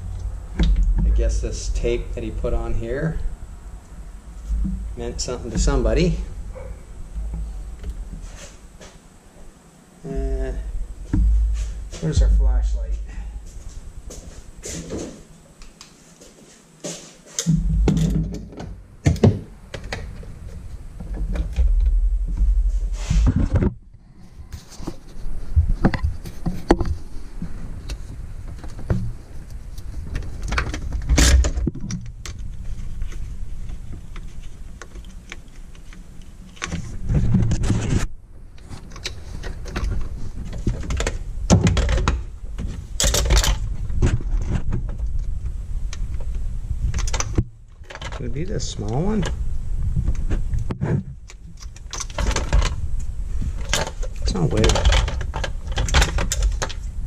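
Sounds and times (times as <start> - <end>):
camera rubbing rumble: 0.0 - 9.0, 19.4 - 47.5, 48.2 - 57.0
clicks and clatter of handling: 53.6 - 56.8.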